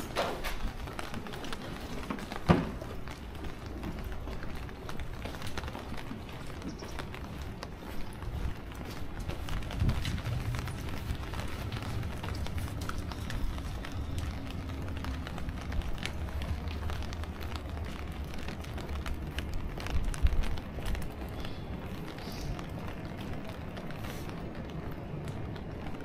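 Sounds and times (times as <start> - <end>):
low street rumble: 0.0 - 26.0.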